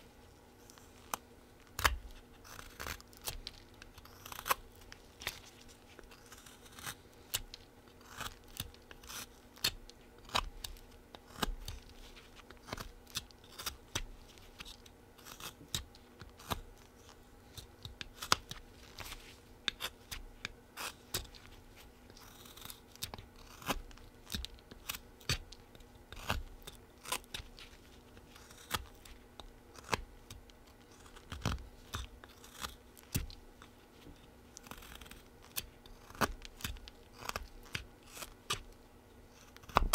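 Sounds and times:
knife scraping wood: 1.8s - 20.2s, 20.8s - 25.5s, 26.1s - 29.2s, 30.7s - 33.8s, 34.6s - 38.7s.

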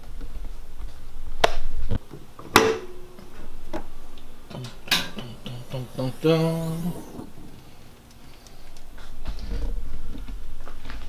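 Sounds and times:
steady pitched hum: 2.0s - 9.2s.

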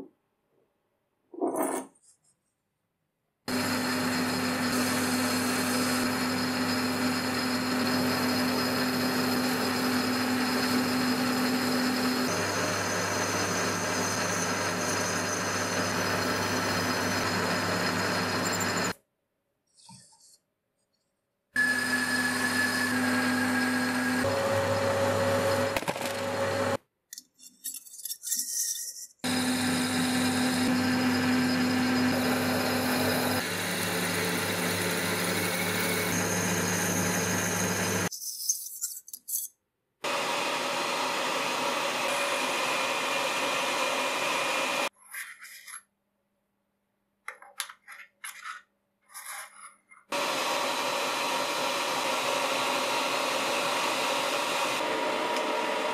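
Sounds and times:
drill boring into metal: 3.5s - 19.0s, 21.6s - 24.8s, 29.3s - 38.1s
metal lathe cutting: 3.5s - 19.0s, 21.6s - 26.8s, 29.3s - 38.1s, 40.1s - 44.9s, 50.1s - 55.9s.

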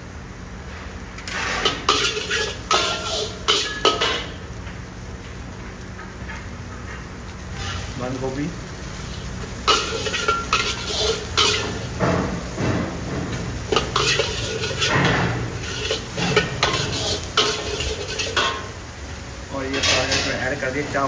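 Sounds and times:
food sizzling: 0.0s - 21.0s
spatula scraping a wok: 1.2s - 4.4s, 7.5s - 8.1s, 8.7s - 19.0s.

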